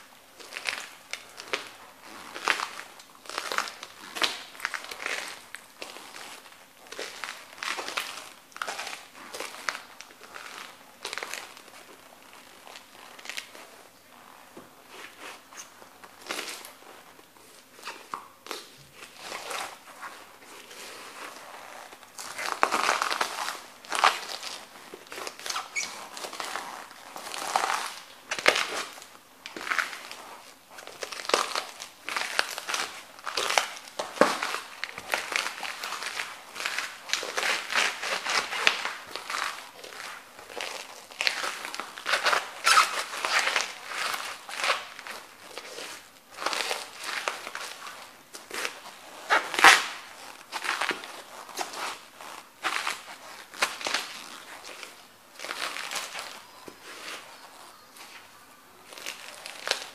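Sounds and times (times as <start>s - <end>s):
paper crinkling: 0.4s - 59.9s
stalks crunching under boots: 17.6s - 58.2s.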